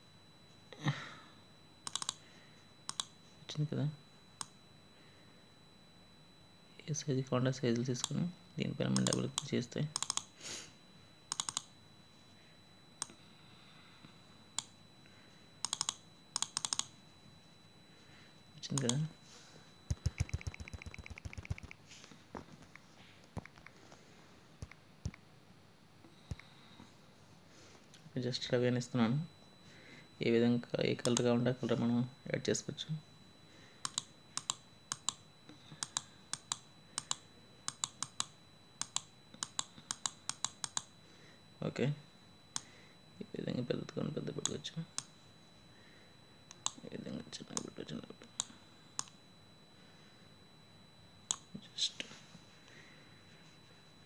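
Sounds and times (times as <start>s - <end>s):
sharp irregular clicks: 1.8s - 2.2s, 2.9s - 3.1s, 9.9s - 10.3s, 11.3s - 11.7s, 15.6s - 16.9s, 19.9s - 21.8s, 33.8s - 35.2s, 35.8s - 40.9s, 48.4s - 49.2s.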